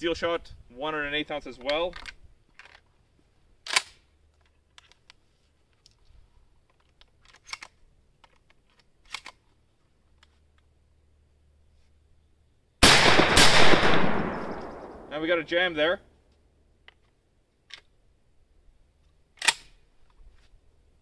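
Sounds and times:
shotgun action metallic clicks: 3.6s - 5.2s, 6.6s - 9.4s, 13.1s - 15.1s, 16.8s - 18.0s, 19.3s - 19.8s.

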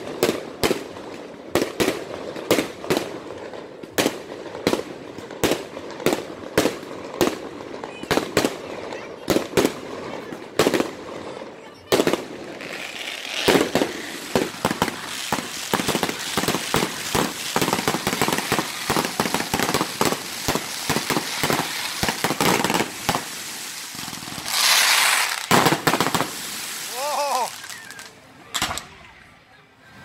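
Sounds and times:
fireworks bangs and crackling pops: 0.0s - 29.2s
sustained crackling hiss: 12.2s - 28.3s.

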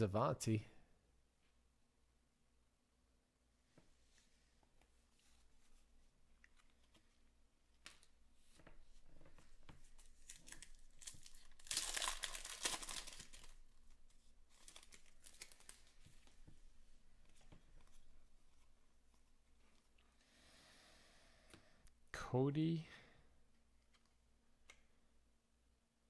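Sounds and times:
wrapper tearing and crinkling: 10.2s - 16.0s.

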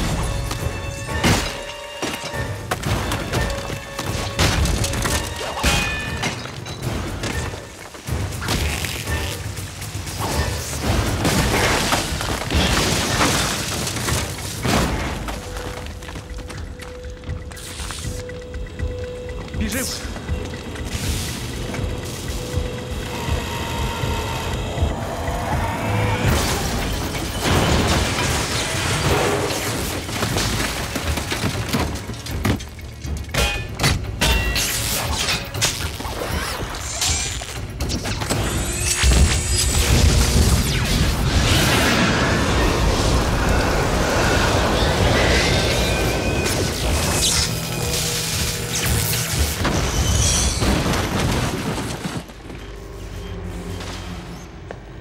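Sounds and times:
ceiling and debris collapsing: 0.0s - 17.1s, 19.6s - 53.2s
film score music: 0.0s - 55.0s
electrical arcing and sparking: 34.6s - 52.4s.

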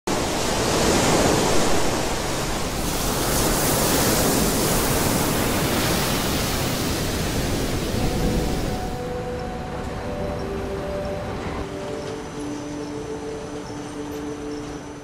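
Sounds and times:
waves breaking on sand: 0.1s - 9.1s.

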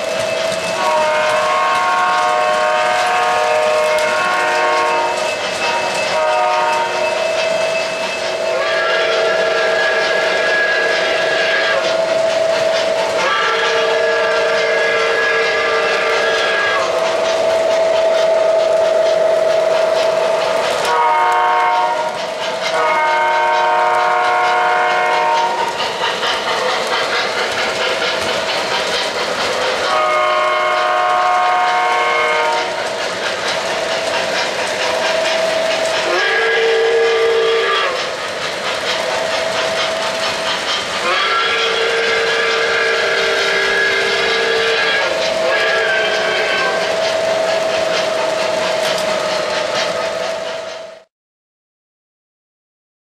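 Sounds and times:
wheels clattering on rails: 0.0s - 51.0s
model train horn chords: 0.8s - 5.2s, 6.1s - 7.0s, 8.5s - 11.8s, 13.2s - 16.9s, 20.8s - 25.7s, 29.9s - 32.8s, 36.1s - 38.0s.

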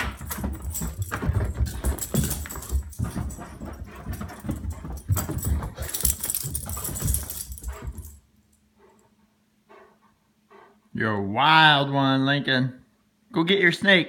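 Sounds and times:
dog paws thudding on carpet: 0.0s - 8.2s.

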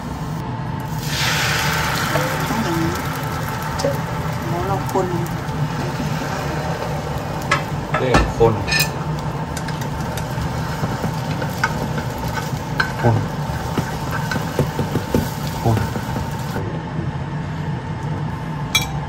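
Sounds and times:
steady low hum: 0.0s - 19.0s
egg sizzling in pan: 0.9s - 16.6s.

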